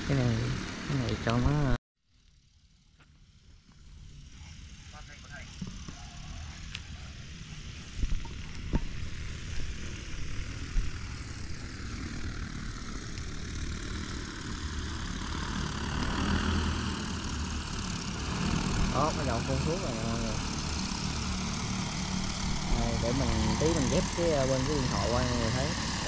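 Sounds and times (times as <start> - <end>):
drone rotors whirring: 2.4 - 26.0.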